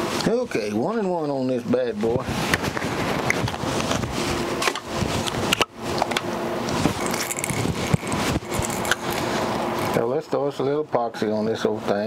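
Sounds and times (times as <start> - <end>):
epoxy being stirred in a cup: 5.0 - 10.1.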